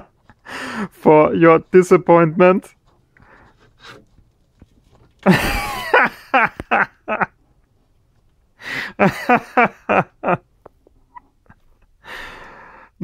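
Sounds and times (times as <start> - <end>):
man laughing in short bursts: 5.2 - 7.2.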